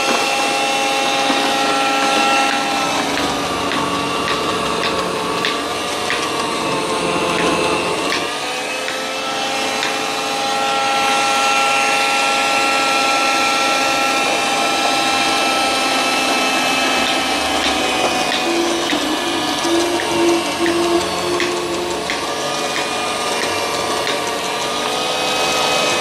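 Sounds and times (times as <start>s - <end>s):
juicer motor whine: 0.0s - 26.0s.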